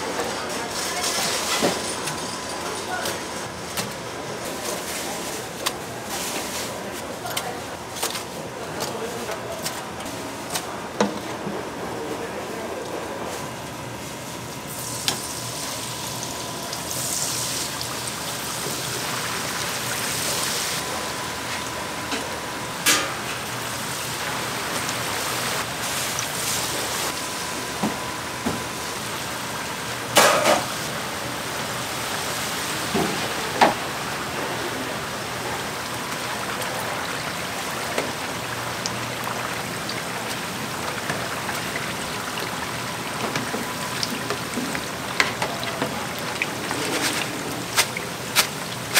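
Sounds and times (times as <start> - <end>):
food sizzling in oil: 14.7 - 20.8.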